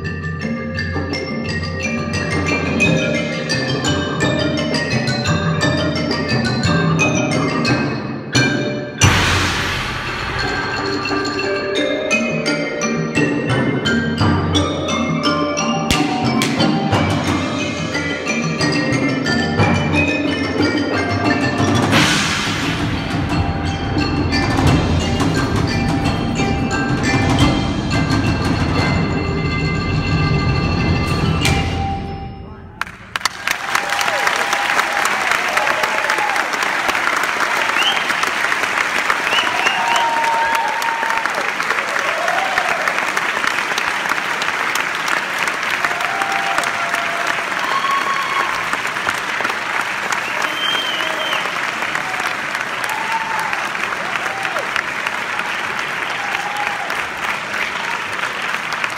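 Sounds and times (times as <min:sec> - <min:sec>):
marimba and vibraphone playing: 0:00.0 - 0:32.8
bright cymbal crash: 0:09.0 - 0:11.3
audience applauding: 0:32.8 - 0:58.9.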